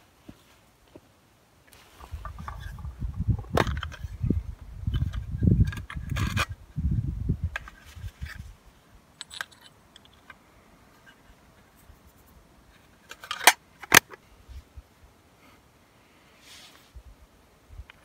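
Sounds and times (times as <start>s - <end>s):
rustling in metal tin: 1.8s - 3.0s.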